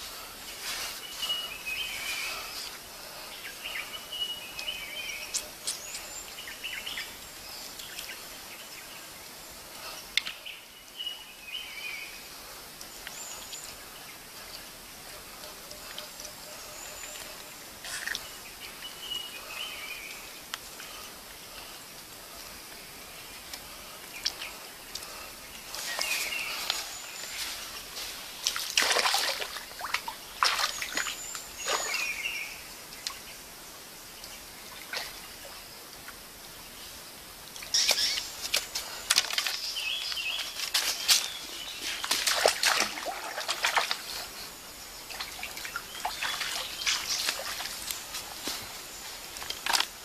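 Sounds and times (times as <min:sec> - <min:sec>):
birds chirping: 0:00.0 - 0:50.0
hands splashing in stream water: 0:28.4 - 0:32.0, 0:41.9 - 0:44.2, 0:45.1 - 0:48.4.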